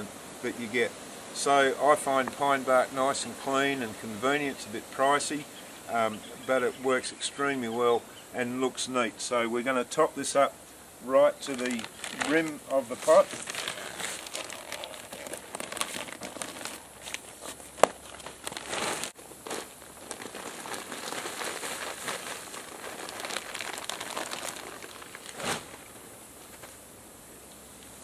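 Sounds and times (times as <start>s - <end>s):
plastic bag rustling: 11.4s - 26.8s.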